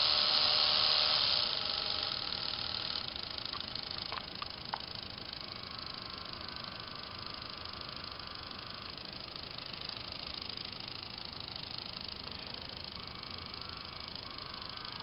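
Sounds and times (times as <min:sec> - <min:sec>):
small electric motors whirring: 0:00.0 - 0:15.0.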